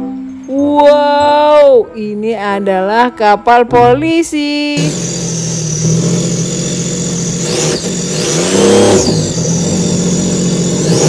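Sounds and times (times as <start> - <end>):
engine drone revving: 4.8 - 11.0.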